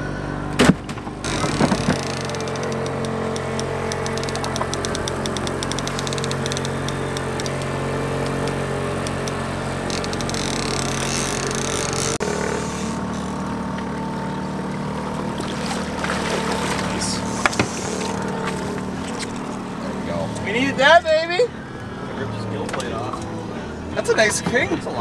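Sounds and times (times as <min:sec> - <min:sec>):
boat engine running: 0:00.0 - 0:25.0
fishing reel ticking: 0:02.0 - 0:13.1.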